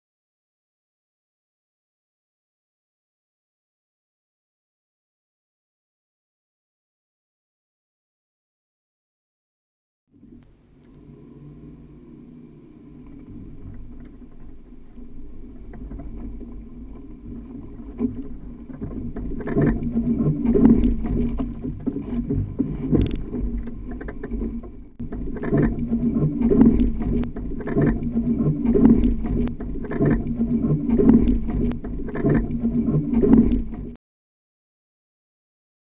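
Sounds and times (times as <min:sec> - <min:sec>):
car engine under load: 0:18.0 - 0:34.0.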